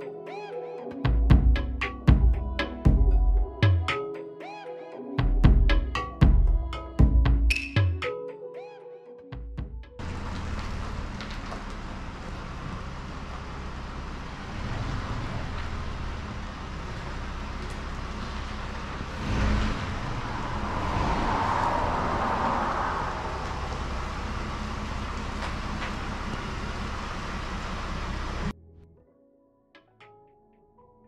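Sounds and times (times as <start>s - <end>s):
road and tyre rush: 10.0s - 28.5s
vehicle engine drone: 10.0s - 28.5s.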